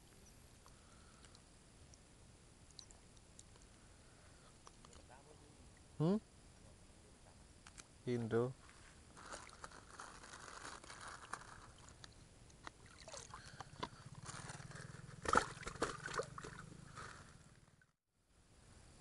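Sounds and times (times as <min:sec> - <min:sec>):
water sloshing and splashing: 0:09.2 - 0:14.5, 0:15.2 - 0:17.0.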